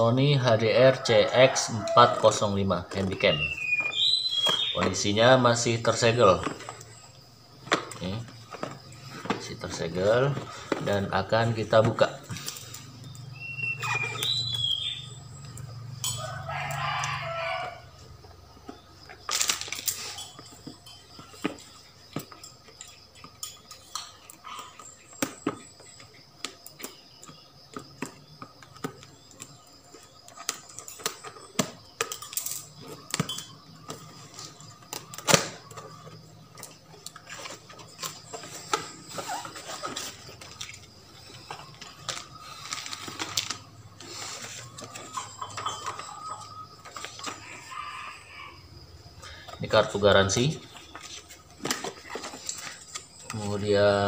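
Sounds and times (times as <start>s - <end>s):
rooster crowing: 0.7s - 2.7s, 15.9s - 18.1s, 45.1s - 49.4s
packaging clicks and rustles: 18.6s - 47.7s, 49.4s - 54.0s.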